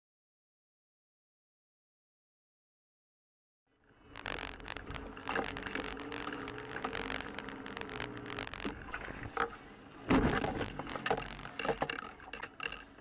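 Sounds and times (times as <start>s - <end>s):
small clicks and rattles: 4.1s - 13.0s
loud thump: 10.1s - 10.6s.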